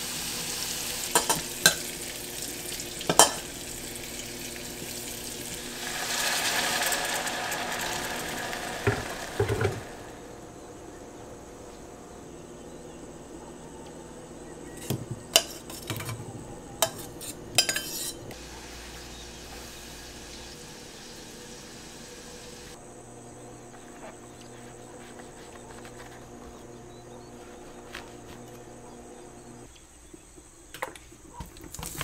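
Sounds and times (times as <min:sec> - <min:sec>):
metal kitchenware clinking: 0:01.1 - 0:01.9, 0:03.1 - 0:03.5, 0:14.7 - 0:18.4.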